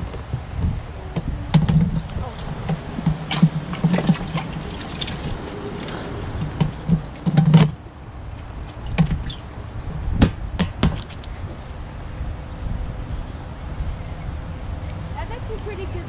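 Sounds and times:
water sloshing in bait well: 1.5s - 9.6s.

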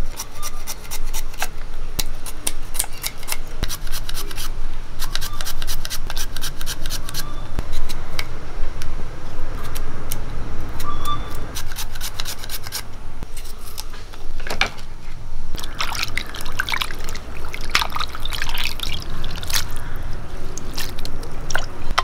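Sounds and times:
wet squelching of meat in water: 15.6s - 21.8s.

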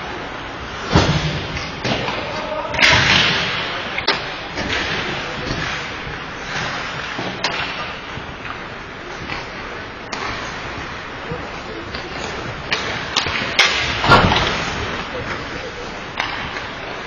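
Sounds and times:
skates scraping ice: 0.0s - 17.0s
hockey sticks and puck cracking: 0.1s - 17.0s
faint shouting voices: 2.1s - 3.0s.

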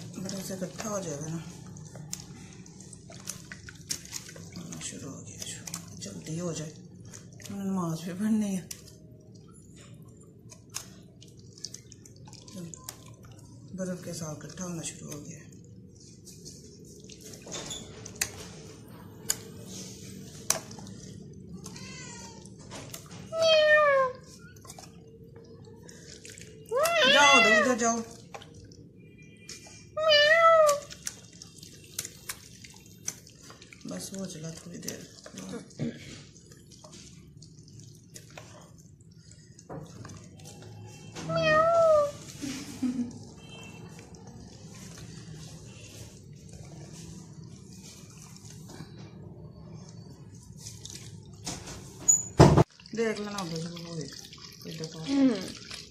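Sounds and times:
cream swirled in metal pot: 0.0s - 18.9s, 30.9s - 41.2s
cat meowing: 23.4s - 24.2s, 26.7s - 27.7s, 30.0s - 30.9s, 41.2s - 42.2s.

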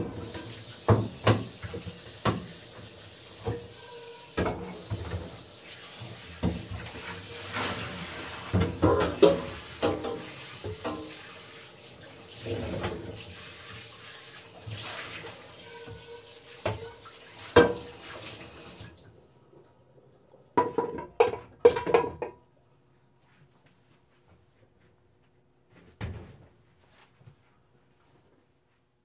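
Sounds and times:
tap water running: 0.0s - 22.9s
dishes knocking and clinking: 8.6s - 11.1s, 20.6s - 22.4s.

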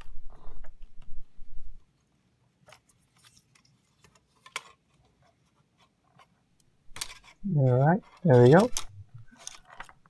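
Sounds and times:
small plastic clicks and scrapes: 2.6s - 10.0s.

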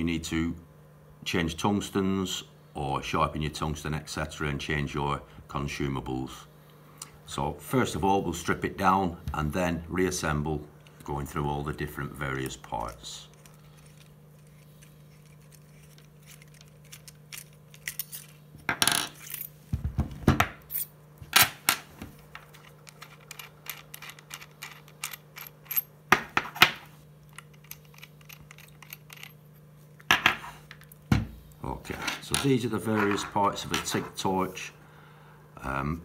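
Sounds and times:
metal parts clicking on desk: 12.8s - 19.4s, 22.2s - 29.4s.

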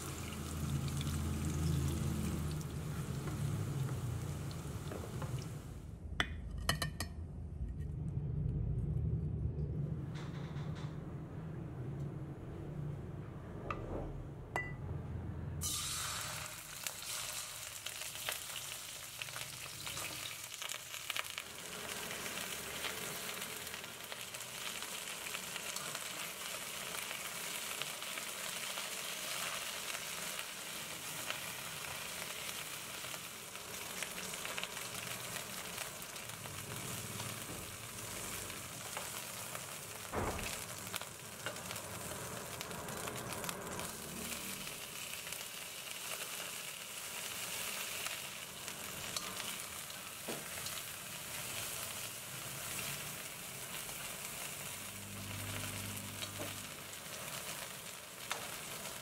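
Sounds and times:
chicken sizzling in hot oil: 0.0s - 5.8s, 15.6s - 59.0s
sharp knocks: 40.1s - 40.6s.

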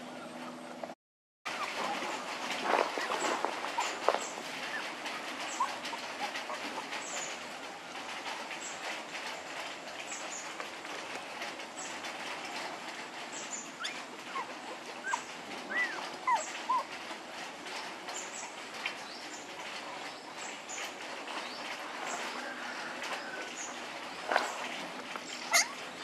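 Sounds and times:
puppies whimpering and crying: 1.5s - 8.2s, 13.5s - 17.5s, 24.4s - 26.0s.

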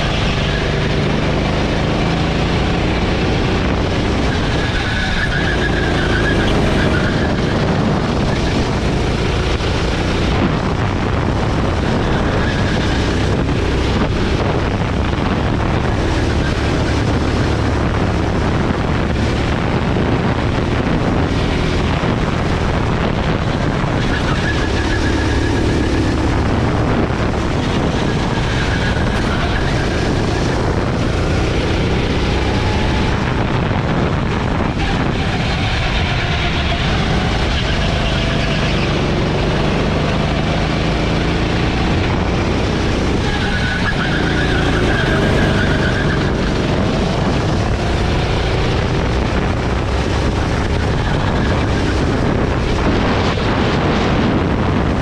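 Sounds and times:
go-kart engine revving: 0.0s - 55.0s
wind noise on microphone: 0.0s - 55.0s.

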